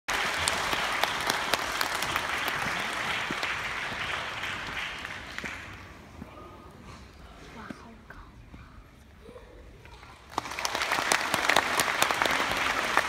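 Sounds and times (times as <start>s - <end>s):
audience applauding: 0.1s - 6.2s, 10.2s - 13.0s.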